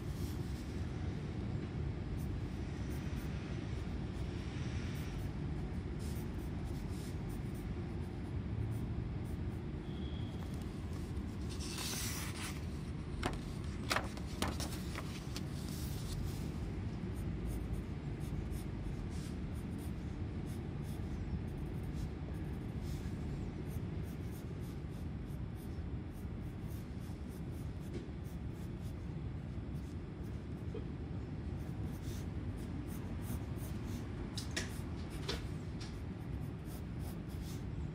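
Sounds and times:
pencil scratching on paper: 0:17.2 - 0:30.7, 0:35.9 - 0:37.7.

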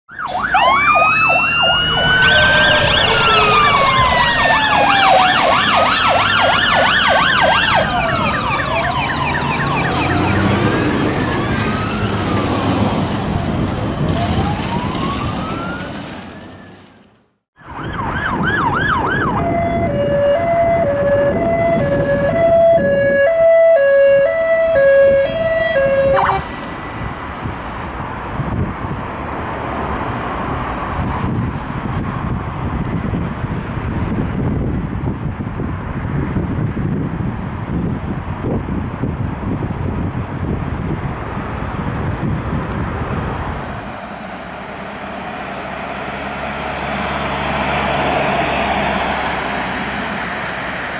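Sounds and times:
two-tone siren: 0:00.1 - 0:16.8, 0:17.6 - 0:26.8
emergency sirens wailing and yelping: 0:00.1 - 0:27.4, 0:43.4 - 0:50.9
road traffic noise: 0:00.1 - 0:50.9.

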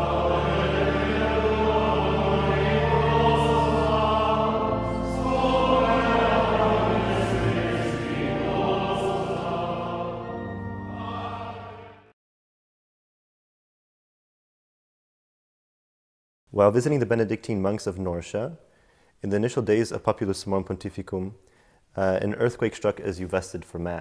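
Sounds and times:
choir singing sacred music: 0:00.0 - 0:12.2.

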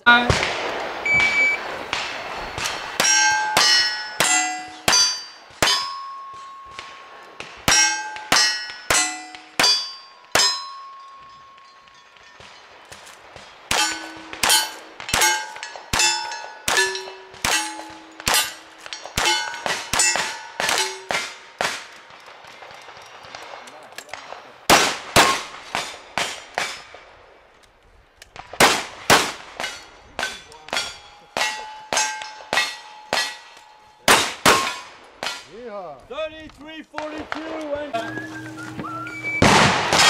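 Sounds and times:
gunshots: 0:00.0 - 0:10.6, 0:12.2 - 0:27.2, 0:28.3 - 0:35.6, 0:39.2 - 0:40.0
steel target clanging: 0:01.1 - 0:22.0, 0:29.2 - 0:35.6.

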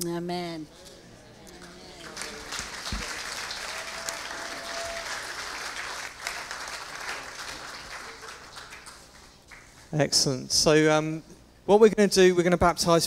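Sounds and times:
congregation applauding: 0:01.5 - 0:09.9.

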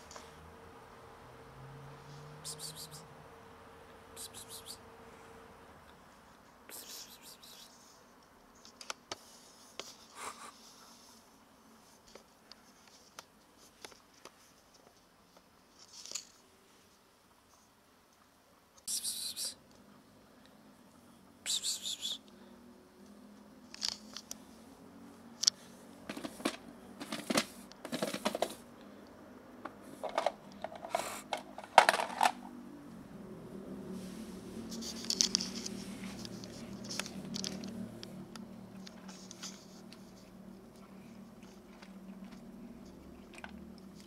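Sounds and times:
plastic box and kibble rattling: 0:26.1 - 0:28.6, 0:30.0 - 0:32.4
cat crunching dry kibble: 0:34.8 - 0:38.0, 0:40.8 - 0:44.0.

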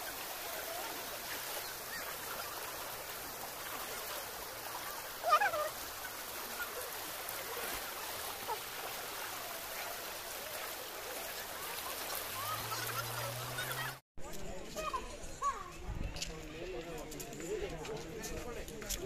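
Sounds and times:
river water rushing over rocks: 0:00.0 - 0:14.0.

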